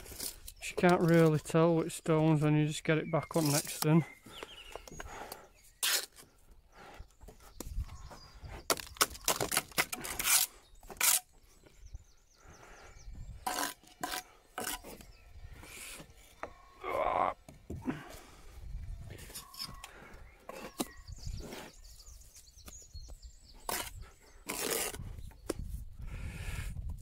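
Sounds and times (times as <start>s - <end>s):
trowel scraping mortar: 3.2s - 3.8s, 9.3s - 11.3s, 13.4s - 15.1s, 23.6s - 25.2s.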